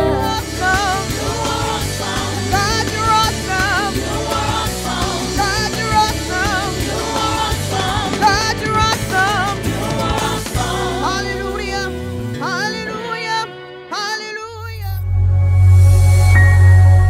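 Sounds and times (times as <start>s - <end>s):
female vocal trio singing: 0.0s - 13.6s
instrumental accompaniment with bass: 0.0s - 13.9s, 14.7s - 17.0s.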